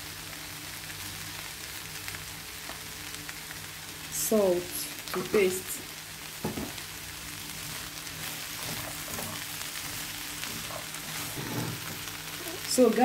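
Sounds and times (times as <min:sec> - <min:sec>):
beans sizzling in a frying pan: 0:00.0 - 0:13.0
soft knocks against pan: 0:06.4 - 0:06.8
spatula stirring food: 0:07.5 - 0:12.4.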